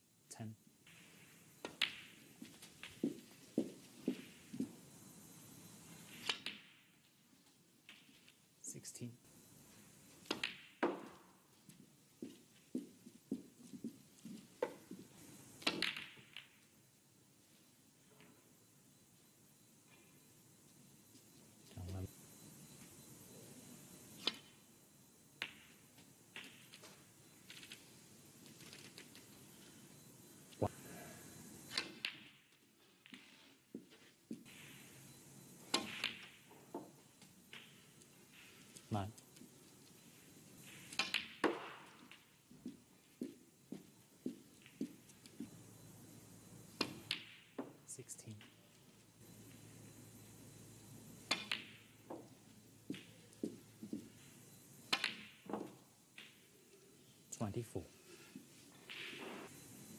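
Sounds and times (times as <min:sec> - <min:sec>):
snooker balls clicking: 0:00.9 - 0:04.8, 0:06.1 - 0:08.5, 0:10.1 - 0:16.7, 0:25.4 - 0:29.8, 0:31.5 - 0:34.9, 0:35.6 - 0:45.5, 0:46.7 - 0:49.7, 0:51.2 - 0:56.7
cue striking ball: 0:41.0 - 0:42.0.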